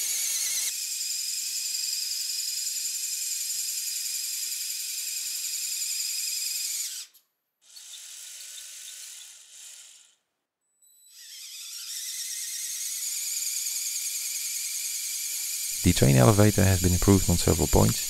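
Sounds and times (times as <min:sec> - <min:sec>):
air pumps whining: 0:15.7 - 0:18.0.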